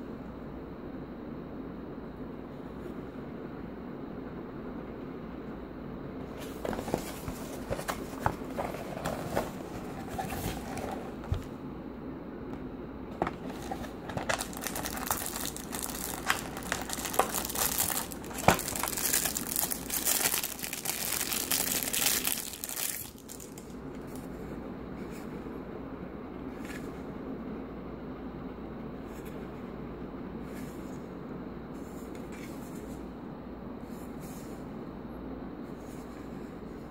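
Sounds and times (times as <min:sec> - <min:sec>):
plastic bag crinkling: 0:13.2 - 0:24.2.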